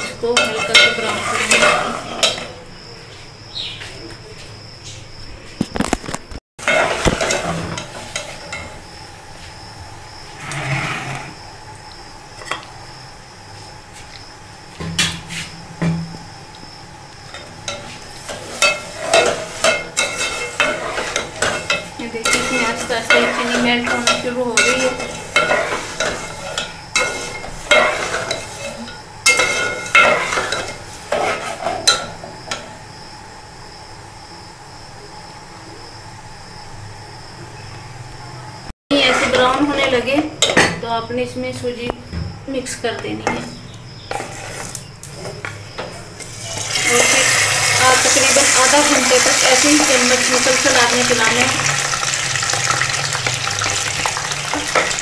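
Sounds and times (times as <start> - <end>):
metal spatula scraping a pot: 0.0 - 2.6, 6.6 - 8.8, 10.4 - 11.4, 17.3 - 32.2, 38.9 - 40.6, 43.3 - 45.3, 53.6 - 55.0
oil sizzling: 6.6 - 10.7, 11.3 - 34.2, 44.1 - 55.0.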